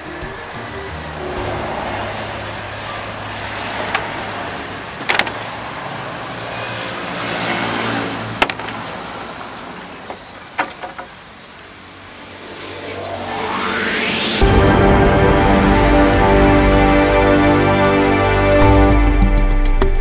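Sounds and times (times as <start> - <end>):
road traffic going by: 0.0 - 15.8.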